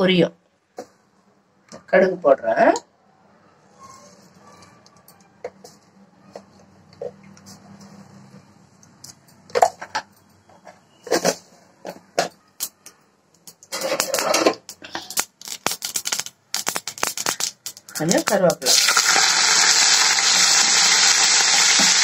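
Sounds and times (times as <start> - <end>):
mustard seeds popping in oil: 14.7 - 22.0.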